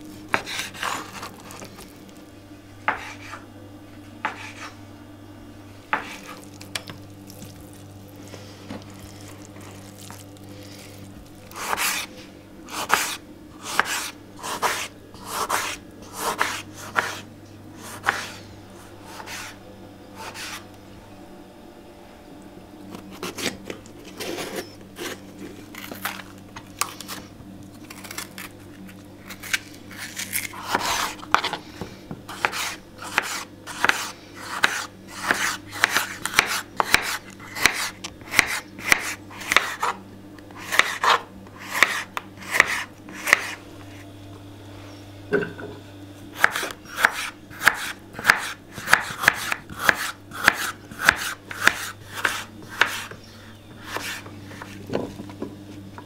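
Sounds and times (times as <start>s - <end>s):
low steady hum: 0.0s - 56.0s
knife chopping on cutting board: 0.3s - 1.6s, 2.9s - 3.4s, 4.2s - 4.7s, 5.9s - 7.5s, 11.5s - 12.1s, 12.7s - 17.2s, 17.8s - 18.4s, 29.4s - 40.0s, 40.6s - 43.6s, 46.4s - 53.2s, 53.8s - 55.0s.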